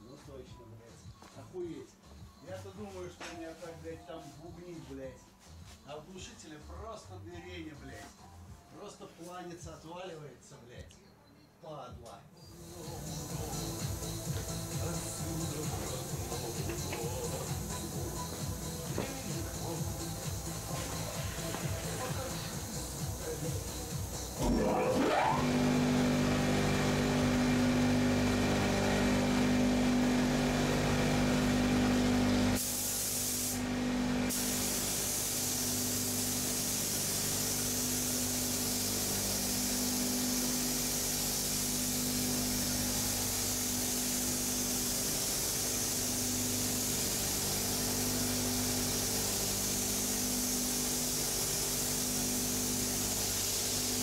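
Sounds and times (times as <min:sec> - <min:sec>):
air compressor hum: 0:12.4 - 0:54.0
paint spray gun hissing: 0:12.6 - 0:24.5, 0:32.6 - 0:33.7, 0:34.3 - 0:54.0.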